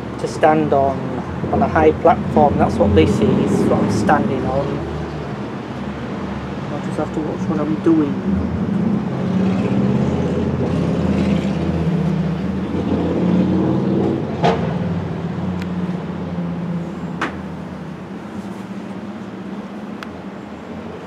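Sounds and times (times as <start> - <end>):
sharp knocks: 17.2 - 17.4.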